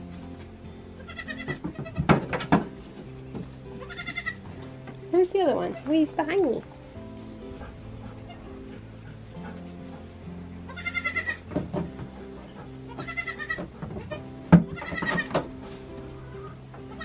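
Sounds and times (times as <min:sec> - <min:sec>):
background music: 0:00.0 - 0:17.0
goat kids bleating: 0:01.0 - 0:02.2, 0:03.8 - 0:04.5, 0:08.2 - 0:08.7, 0:10.7 - 0:11.5, 0:12.7 - 0:15.4, 0:16.1 - 0:17.0.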